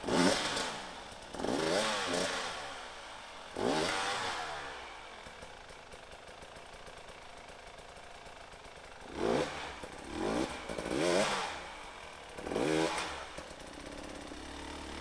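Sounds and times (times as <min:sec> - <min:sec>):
dirt bike engine revving: 0:00.0 - 0:05.4, 0:08.8 - 0:15.0.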